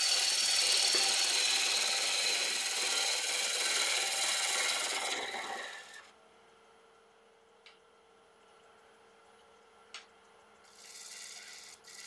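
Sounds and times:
lathe tool scraping wood: 0:00.0 - 0:06.1, 0:10.7 - 0:12.0.

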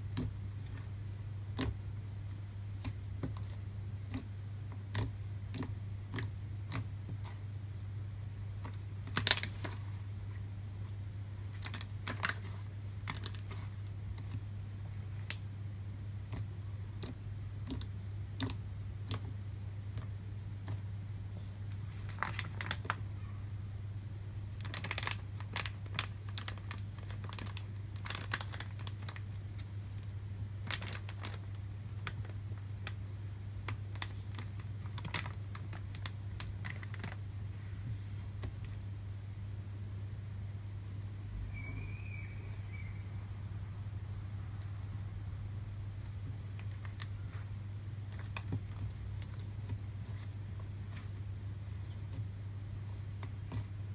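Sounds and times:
steady low hum: 0:00.0 - 0:53.9
slime clicking and popping: 0:01.5 - 0:01.8, 0:02.8 - 0:07.3, 0:16.2 - 0:20.8.

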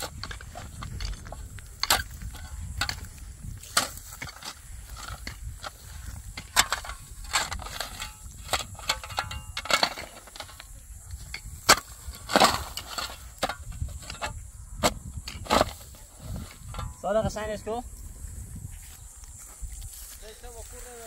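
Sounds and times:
sharp wooden knocks and cracks: 0:00.0 - 0:05.8, 0:11.3 - 0:15.9.

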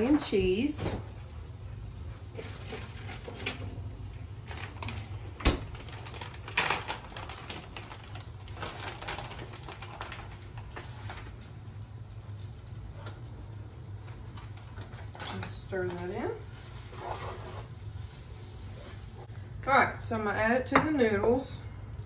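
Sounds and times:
plastic bag crinkling: 0:02.3 - 0:12.8, 0:13.8 - 0:19.0.

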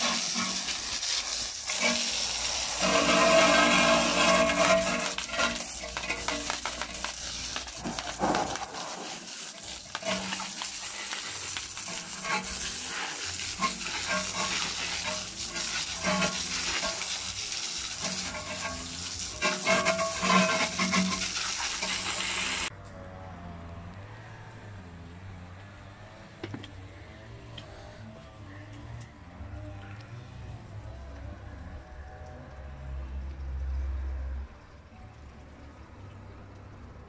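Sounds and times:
pressure washer spraying: 0:00.0 - 0:22.7.

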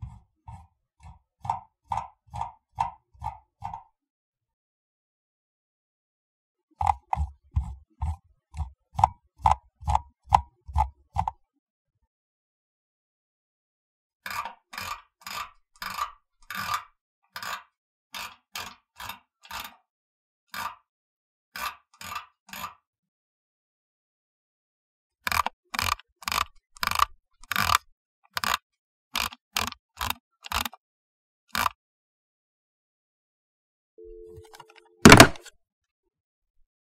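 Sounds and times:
mouse scroll wheel ticking: 0:00.0 - 0:04.0, 0:06.8 - 0:11.4, 0:14.3 - 0:19.8, 0:21.6 - 0:22.8, 0:25.2 - 0:30.8, 0:31.5 - 0:31.8.

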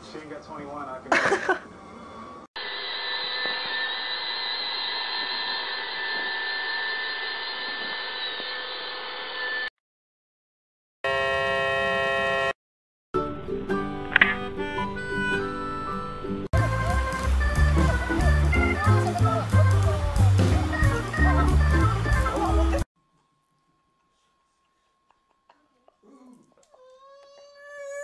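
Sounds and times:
robot vacuum motor whir: 0:02.6 - 0:09.7
music: 0:13.2 - 0:22.9.

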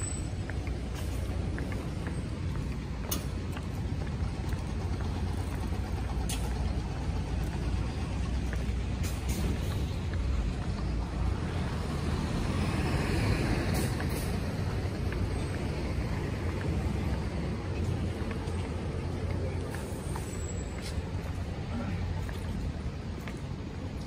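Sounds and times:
street traffic rumble: 0:00.0 - 0:24.0
vehicle passing by: 0:04.2 - 0:20.3.

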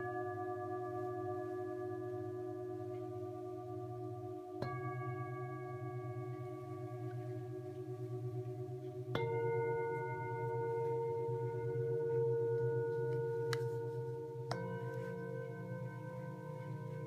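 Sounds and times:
singing bowls ringing: 0:00.0 - 0:17.0
singing bowl struck: 0:04.6 - 0:17.0.

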